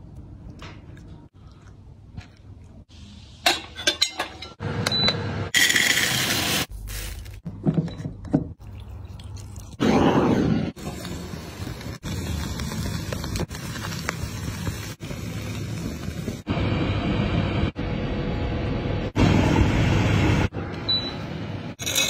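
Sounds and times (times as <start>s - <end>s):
utensils clinking on dishes: 3.4s - 4.6s, 21.8s - 22.0s.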